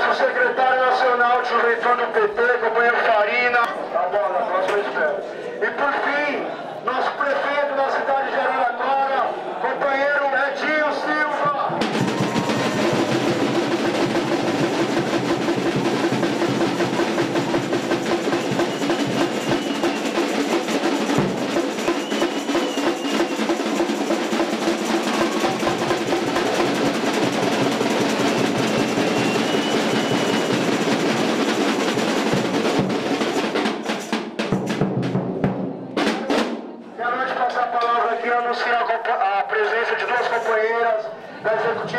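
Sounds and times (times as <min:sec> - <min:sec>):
drums with snare rolls: 0:11.5 - 0:36.8.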